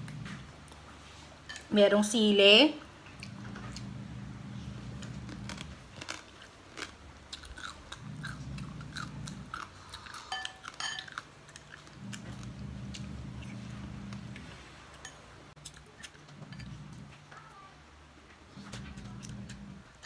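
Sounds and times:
low background hum: 0.0s - 20.0s
person chewing noodle soup: 5.0s - 14.2s.

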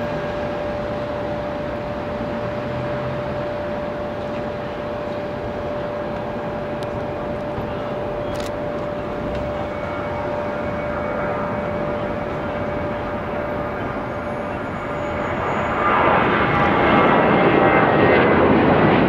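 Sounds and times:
distant jet engines taxiing: 0.0s - 19.0s.

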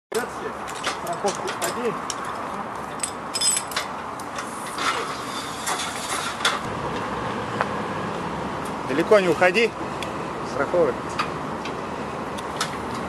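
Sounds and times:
outdoor background noise: 0.1s - 13.0s
metal equipment clicking and clinking: 0.7s - 3.9s.

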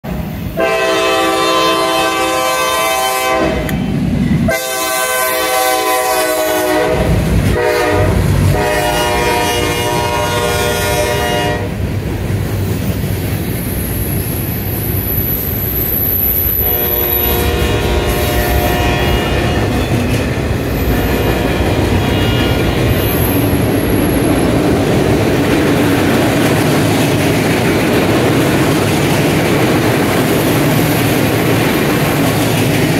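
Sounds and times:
locomotive air horn blasts: 0.6s - 3.8s, 4.4s - 11.8s, 16.6s - 20.1s, 20.9s - 22.9s
freight cars rumbling and clacking: 17.5s - 32.9s.

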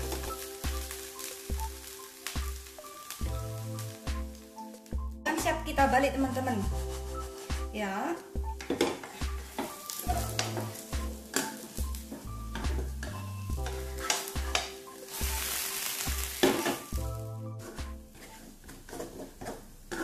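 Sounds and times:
potato sizzling in hot oil: 0.0s - 5.0s, 9.0s - 17.3s
background music with bass beat: 0.0s - 15.5s
spatula scraping and knocking on pan: 8.4s - 20.0s.

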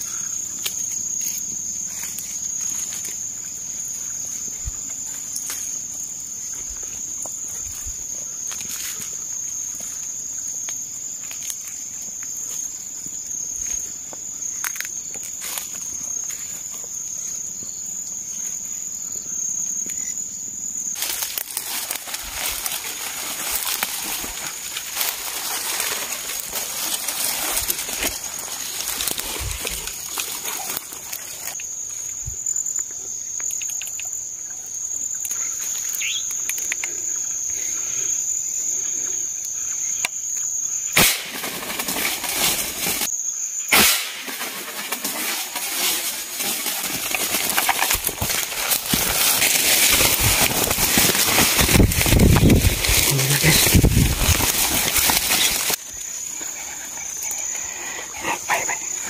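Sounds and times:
insects trilling: 0.0s - 59.0s
rustling: 21.0s - 31.6s, 41.3s - 43.1s, 44.0s - 59.0s.

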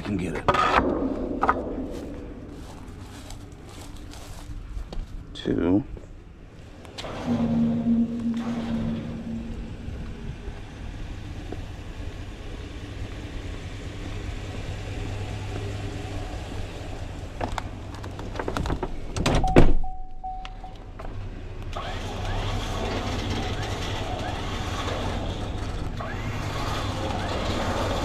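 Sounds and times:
truck engine idling: 6.7s - 18.1s
truck door shutting: 18.4s - 20.0s
short steady beep: 19.4s - 20.8s.

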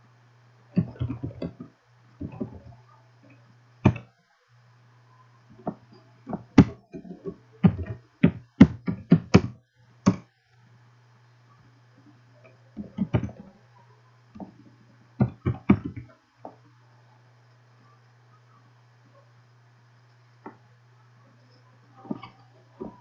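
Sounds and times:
low steady hum: 0.0s - 23.0s
keyboard keys tapping: 0.8s - 2.8s, 3.8s - 4.1s, 5.6s - 10.3s, 12.8s - 13.6s, 15.2s - 16.2s.

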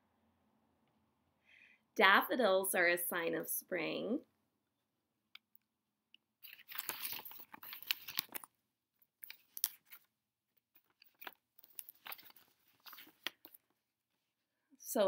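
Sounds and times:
crinkly rustling of props: 6.4s - 8.5s, 9.1s - 13.8s.

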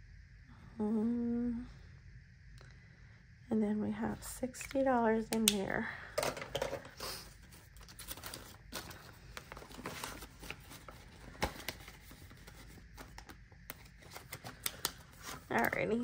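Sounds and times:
paper rustling: 7.0s - 15.8s.

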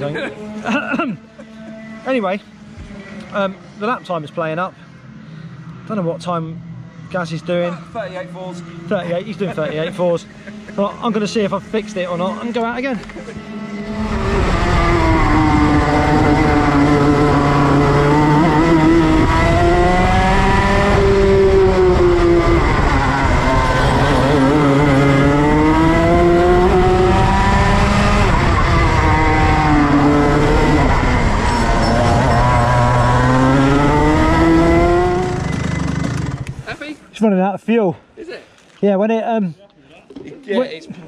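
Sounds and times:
go-kart engine revving: 6.0s - 36.6s.

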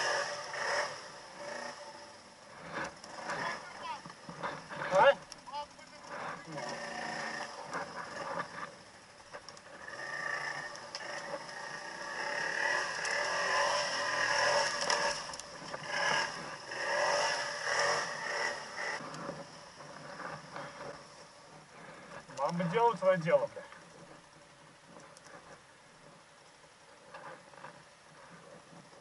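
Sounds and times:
atv engine revving: 0.0s - 23.0s
branches scraping and clattering: 2.5s - 29.0s.

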